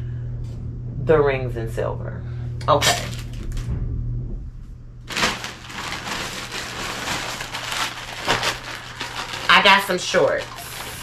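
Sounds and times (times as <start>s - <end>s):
plastic bag crinkling: 2.8s - 3.6s, 5.1s - 11.0s.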